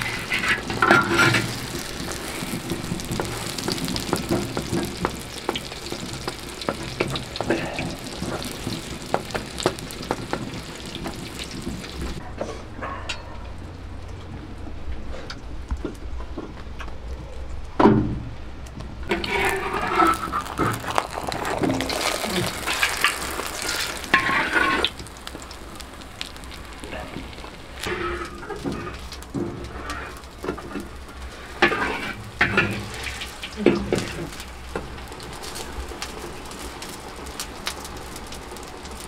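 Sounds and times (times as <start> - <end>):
metal spatula scraping pan: 0.0 - 5.3, 19.1 - 24.9, 31.6 - 33.2
bread sizzling in oil: 0.0 - 12.2, 19.0 - 39.0.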